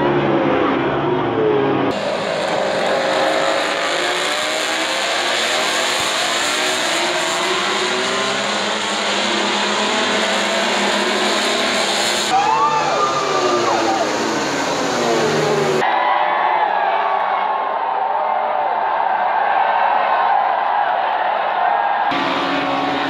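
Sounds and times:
racing motorcycles passing: 0.0s - 15.8s, 22.1s - 23.0s.

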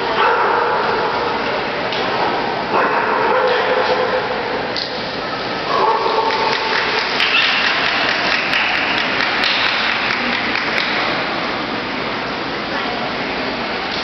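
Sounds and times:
spectators applauding: 6.2s - 11.2s.

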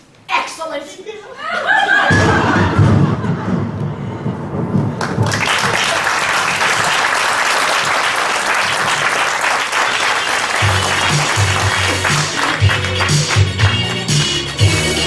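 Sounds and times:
audience applauding: 5.0s - 15.0s
music with low bass beat: 10.6s - 15.0s.

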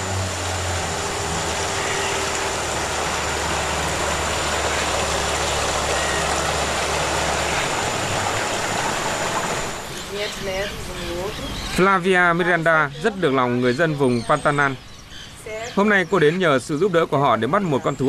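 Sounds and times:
outboard motor running: 0.0s - 13.8s
water rushing past hull: 0.0s - 13.8s.

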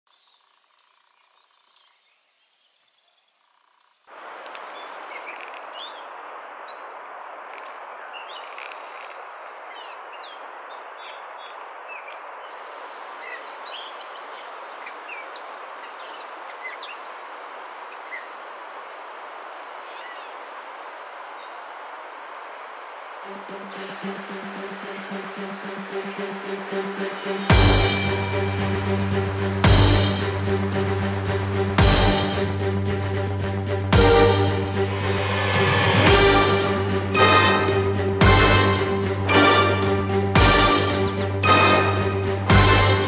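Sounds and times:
steady rushing noise: 23.2s - 43.0s.

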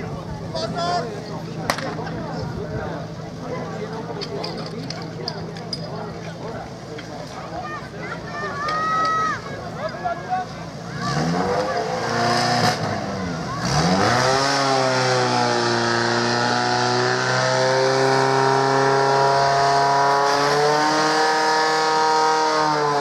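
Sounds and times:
pump engine revving: 10.6s - 23.0s.

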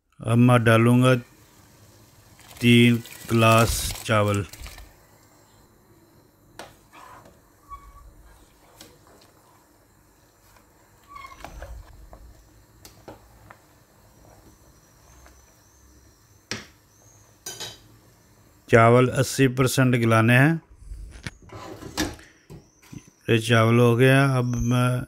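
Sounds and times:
rice stirred in boiling water: 1.2s - 5.0s
faint squeaks: 6.9s - 8.5s, 11.0s - 11.9s.

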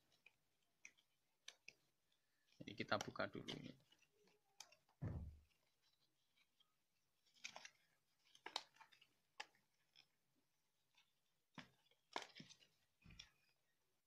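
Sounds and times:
low thump: 5.0s - 5.4s.

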